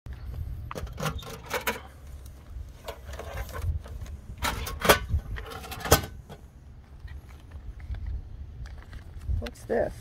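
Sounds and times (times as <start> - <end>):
metal mailbox door clanking: 4.4 - 6.4.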